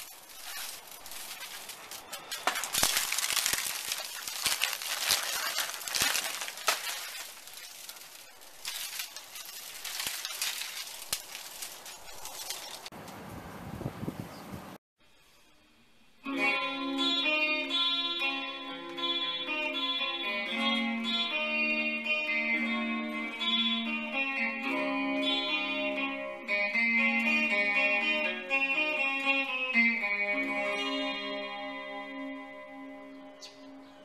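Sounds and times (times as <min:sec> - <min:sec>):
electric guitar melody: 0:16.3 - 0:33.7.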